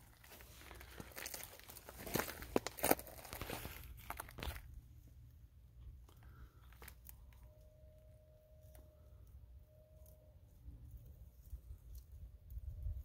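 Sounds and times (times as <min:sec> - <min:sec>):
footsteps on gravel and leaves: 0:00.0 - 0:04.7
faint held tone: 0:06.2 - 0:11.8.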